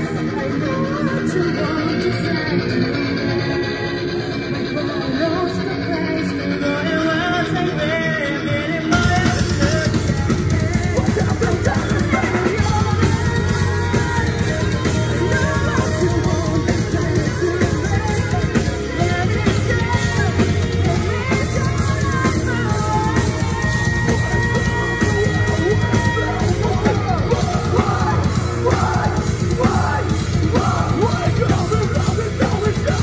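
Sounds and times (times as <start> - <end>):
distorted electric guitar: 0.0 - 33.0
people singing into microphones: 0.0 - 33.0
drum kit: 8.0 - 33.0.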